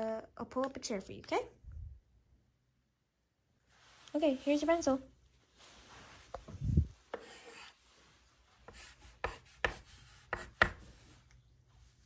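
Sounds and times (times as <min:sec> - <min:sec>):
pencil scratching on paper: 0:07.1 - 0:08.0, 0:08.6 - 0:11.2
pencil taps: 0:08.7 - 0:11.0.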